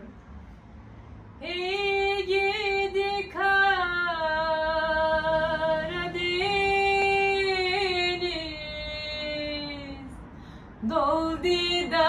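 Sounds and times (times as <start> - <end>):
woman singing unaccompanied: 1.4 - 10.2, 10.8 - 12.0.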